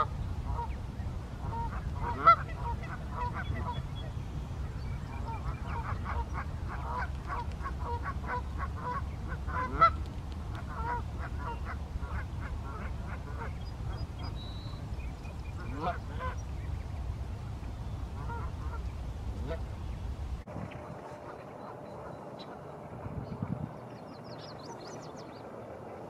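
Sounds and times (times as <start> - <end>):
geese honking: 0.0 - 0.8, 1.4 - 4.1, 5.0 - 16.5, 18.1 - 19.8
wind rumble on microphone: 0.0 - 26.0.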